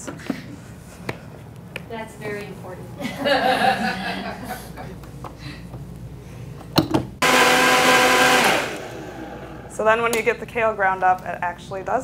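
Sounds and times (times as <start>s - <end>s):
blender running with whine: 7.2s - 9.8s.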